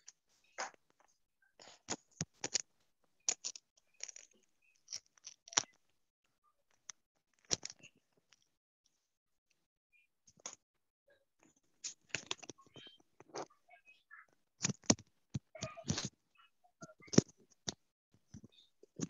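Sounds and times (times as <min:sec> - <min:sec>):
objects scraping and clicking: 0:00.0 - 0:02.7, 0:03.3 - 0:05.9, 0:06.7 - 0:08.5, 0:11.8 - 0:13.6.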